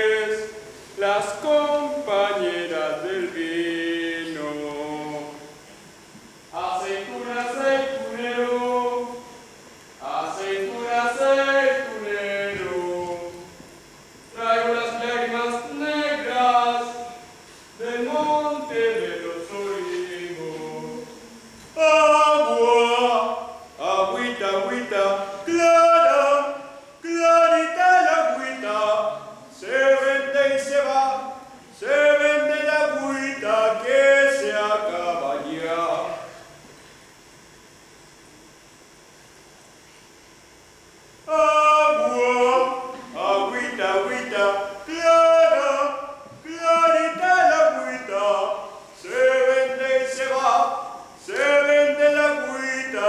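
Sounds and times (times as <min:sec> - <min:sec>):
faint hiss: 0:00.0 - 0:53.0
voices singing unaccompanied: 0:06.5 - 0:13.6, 0:17.8 - 0:31.2, 0:41.3 - 0:53.0.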